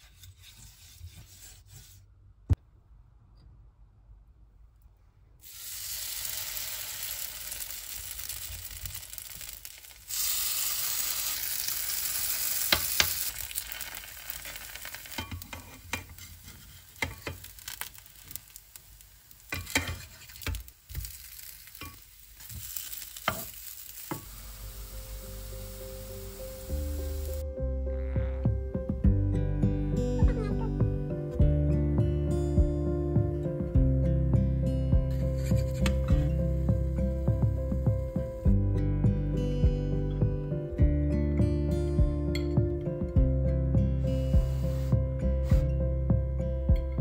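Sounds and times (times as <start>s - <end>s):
metal spoon scraping a pan: 0.0s - 2.0s, 13.8s - 18.3s, 19.4s - 24.3s, 35.1s - 36.1s
pancakes sizzling in hot oil: 5.4s - 27.4s.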